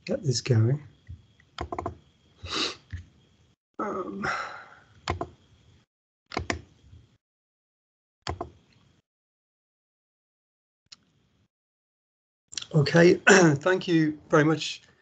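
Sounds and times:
computer mouse clicks: 0:01.4 - 0:02.0, 0:05.0 - 0:05.4, 0:06.3 - 0:06.7, 0:08.3 - 0:08.9.

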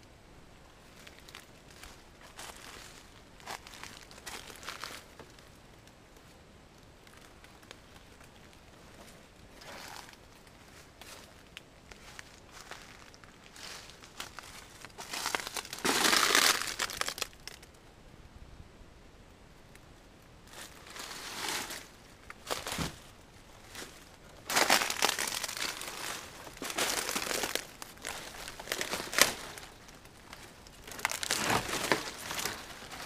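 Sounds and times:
fronds brushing and crackling: 0:00.8 - 0:17.8, 0:20.4 - 0:33.0
footsteps crunching dry leaves: 0:01.0 - 0:05.2, 0:09.6 - 0:17.6, 0:20.5 - 0:33.0.

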